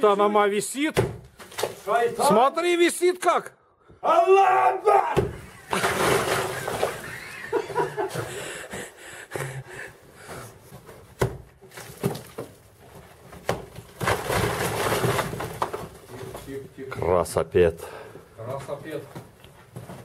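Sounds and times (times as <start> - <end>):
brick wall collapsing: 5.2 - 8.4, 11.6 - 16.7.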